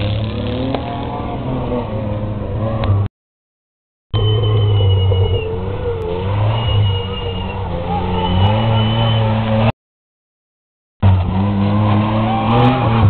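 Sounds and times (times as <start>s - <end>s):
engine revving hard: 11.0s - 13.0s.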